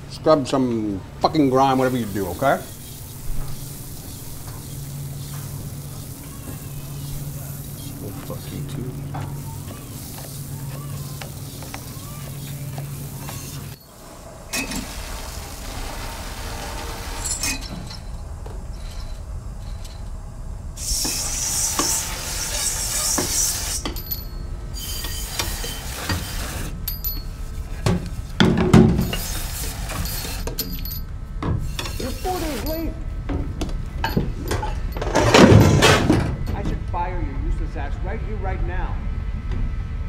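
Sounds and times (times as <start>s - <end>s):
loud hissing: 1.3s - 24.0s, 29.0s - 30.6s, 31.7s - 33.0s
steel pad scrubbing metal pan: 20.8s - 23.9s.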